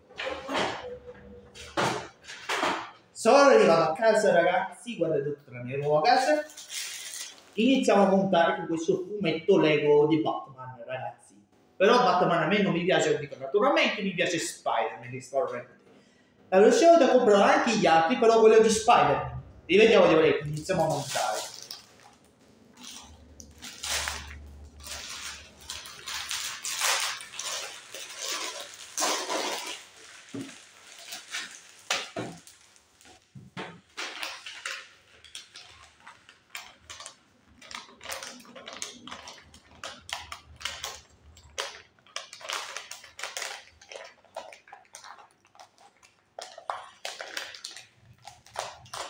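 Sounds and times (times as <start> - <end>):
plastic wrapping crinkling: 6.0 - 8.6, 18.7 - 49.0.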